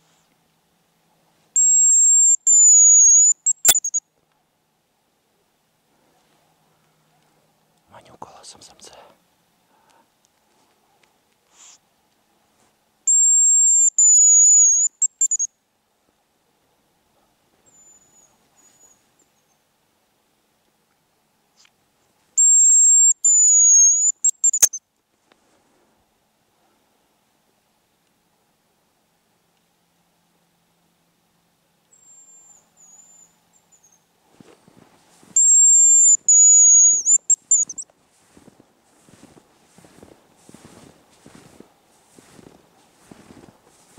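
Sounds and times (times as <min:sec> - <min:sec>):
faint high whistles: 0:01.6 - 0:04.0, 0:13.1 - 0:15.5, 0:17.7 - 0:19.0, 0:22.4 - 0:24.8, 0:35.4 - 0:37.8
high thin lure whistles: 0:01.6 - 0:04.0, 0:13.1 - 0:15.5, 0:22.4 - 0:24.8, 0:35.4 - 0:37.8
short whistle notes: 0:01.6 - 0:04.0, 0:35.4 - 0:37.8
rustling and crunching in snow: 0:25.1 - 0:26.0, 0:34.3 - 0:35.4, 0:38.0 - 0:43.9.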